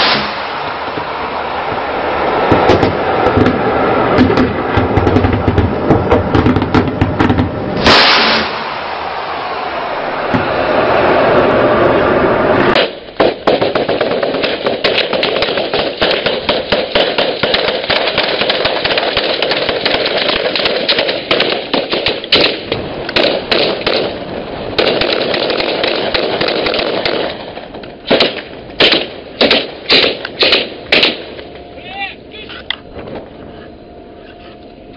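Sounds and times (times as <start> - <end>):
gunshots: 0.0 - 0.5, 6.3 - 9.3, 12.7 - 24.2, 24.8 - 31.3
steady rushing noise: 0.0 - 34.9.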